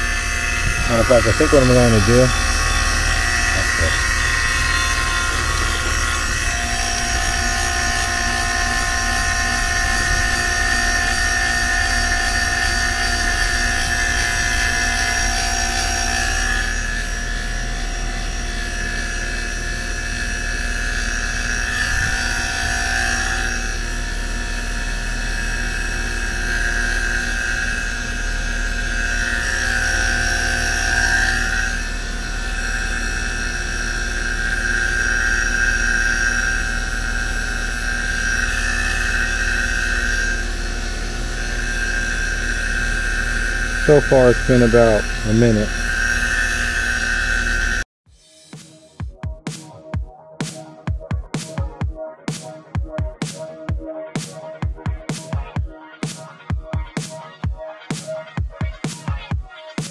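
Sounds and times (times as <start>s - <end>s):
vacuum pump whining: 0.0s - 47.8s.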